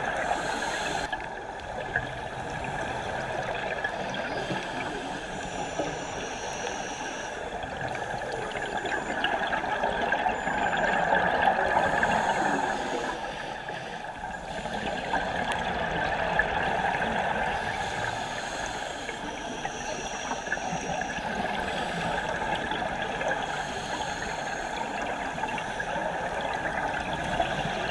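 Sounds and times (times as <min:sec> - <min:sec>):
underwater gurgling: 0:00.0 - 0:27.9.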